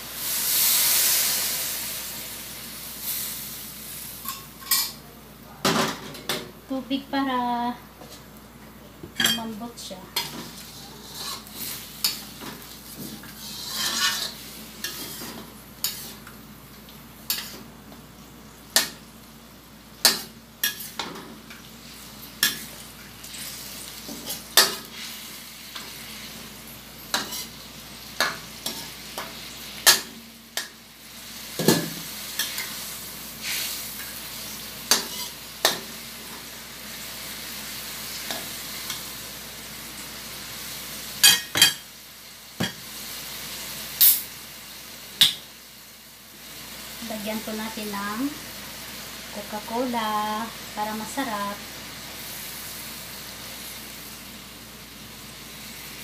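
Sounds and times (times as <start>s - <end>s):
chicken sizzling in a pan: 0.0s - 5.5s, 9.3s - 56.0s
metal spatula scraping a wok: 10.2s - 12.2s, 13.0s - 16.2s, 20.1s - 21.1s, 34.9s - 35.4s.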